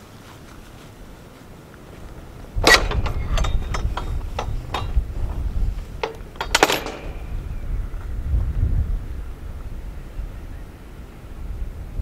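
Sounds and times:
wind buffeting microphone: 0:00.6 - 0:12.0
gate latch clanks: 0:02.6 - 0:07.5
metal gate latch clinking: 0:02.6 - 0:07.6.

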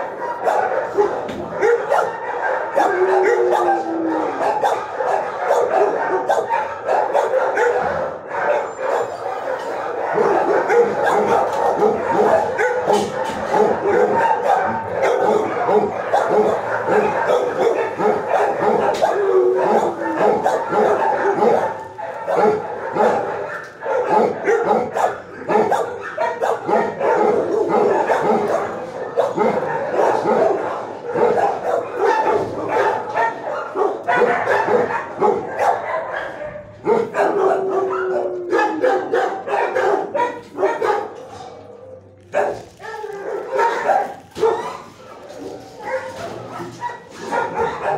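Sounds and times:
many dogs barking: 0:00.0 - 0:47.9
dog whining: 0:16.2 - 0:21.8.

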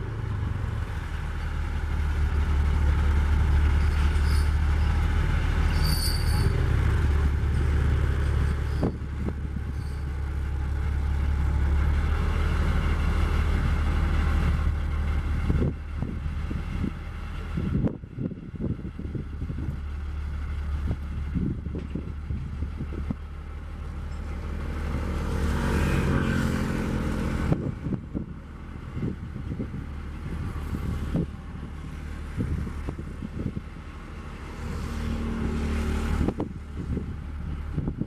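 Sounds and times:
diesel engine running: 0:00.0 - 0:38.0
wind buffeting microphone: 0:06.8 - 0:10.7, 0:11.4 - 0:23.4, 0:26.5 - 0:38.0.

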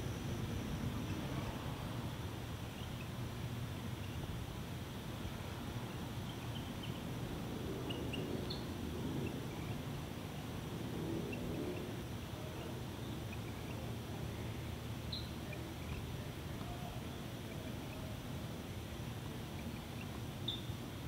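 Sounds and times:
steady hiss: 0:00.0 - 0:21.0
faint high chirps: 0:15.1 - 0:18.1, 0:19.5 - 0:20.8.

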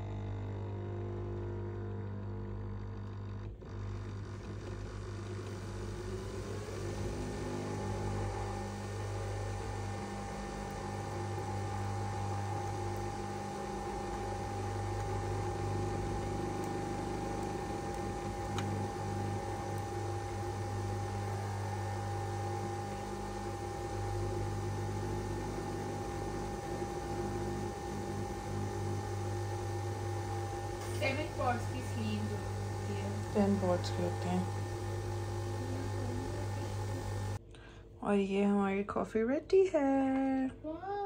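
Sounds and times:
coffee machine hum: 0:00.0 - 0:37.9.

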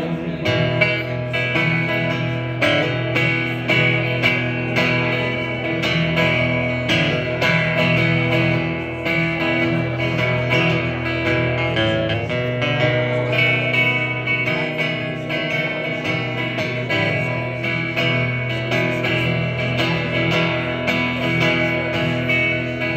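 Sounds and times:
acoustic guitar strumming: 0:00.0 - 0:22.9.

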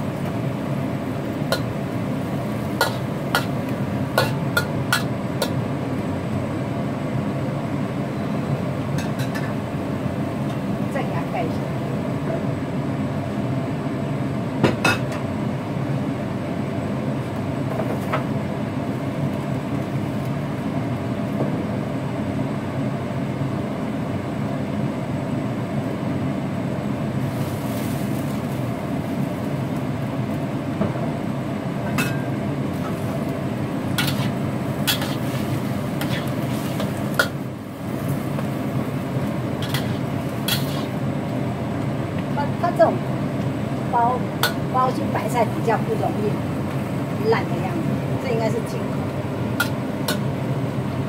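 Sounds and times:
stove burner rumble: 0:00.0 - 0:23.3, 0:25.7 - 0:51.0
metal lid clanking: 0:39.6 - 0:40.9.

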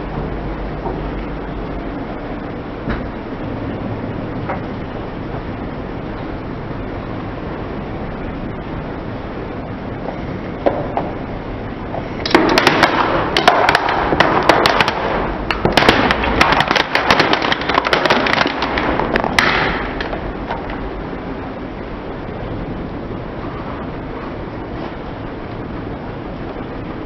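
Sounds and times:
plastic toy cracking: 0:12.2 - 0:20.1.

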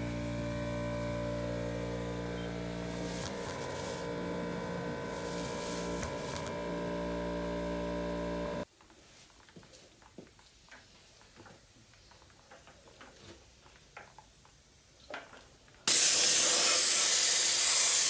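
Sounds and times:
air compressor motor hum: 0:00.0 - 0:08.6
short hisses of air: 0:15.9 - 0:18.0.

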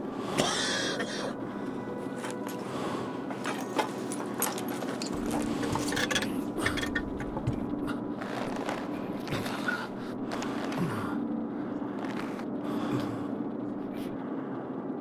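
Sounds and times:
steady low hum: 0:00.0 - 0:15.0
objects clicking and clinking: 0:03.3 - 0:07.7.

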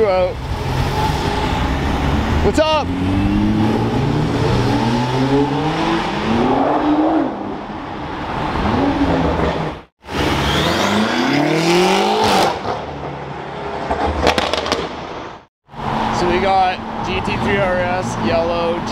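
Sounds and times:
car engine accelerating: 0:00.4 - 0:13.1.

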